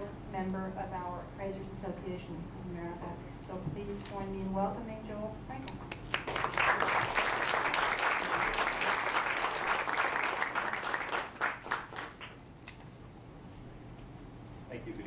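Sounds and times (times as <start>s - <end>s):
audience applauding: 5.7s - 12.4s.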